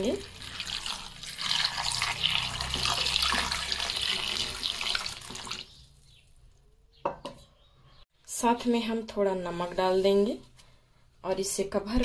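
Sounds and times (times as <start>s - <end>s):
water pouring into a pan: 0.0s - 5.7s.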